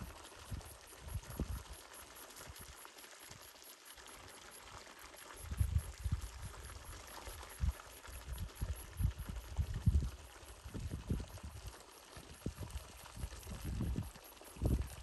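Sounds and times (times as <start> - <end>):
wind buffeting microphone: 8.3 - 11.7, 12.4 - 15.0.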